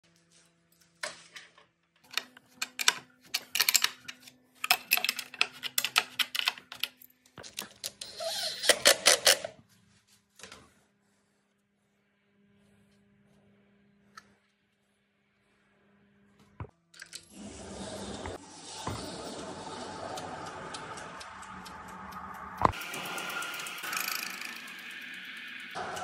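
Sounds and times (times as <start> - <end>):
metallic tool clicking and clatter: 2.1 - 8.0.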